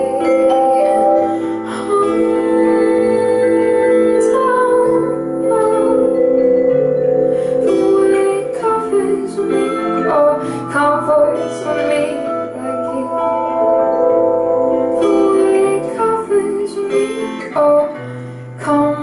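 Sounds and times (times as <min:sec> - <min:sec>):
acoustic guitar: 0:00.0 - 0:19.0
keyboard: 0:00.0 - 0:19.0
vibraphone notes: 0:00.0 - 0:19.0.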